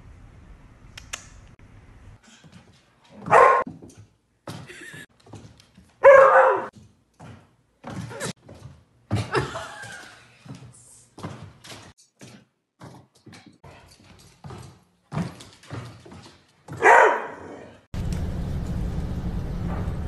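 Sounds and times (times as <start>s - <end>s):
dog barking: 3.2s - 3.7s, 6.0s - 6.7s, 16.7s - 17.8s.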